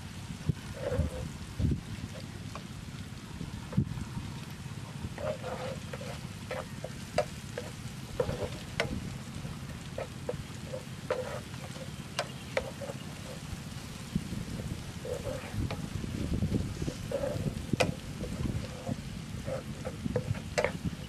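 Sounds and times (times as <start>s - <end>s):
vegetables sizzling in oil: 0.0s - 21.0s
spatula scraping and knocking pan: 5.0s - 21.0s.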